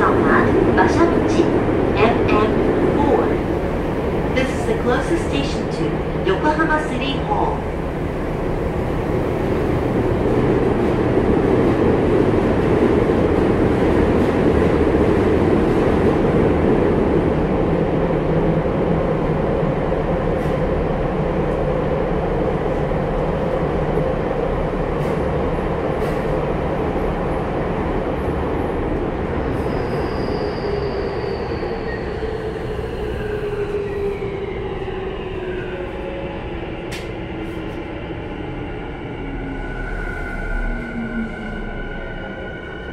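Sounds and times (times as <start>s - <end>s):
subway train rumbling in tunnel: 0.0s - 42.9s.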